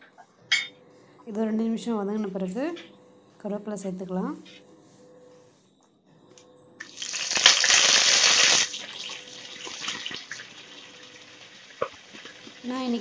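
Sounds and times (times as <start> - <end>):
leaves sizzling in hot oil: 6.8 - 13.0.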